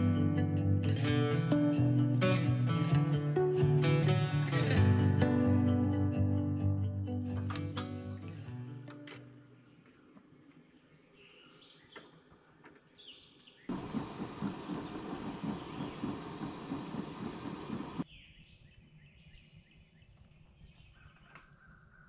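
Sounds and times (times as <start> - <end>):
faint bird chirps: 14.7 - 16.7.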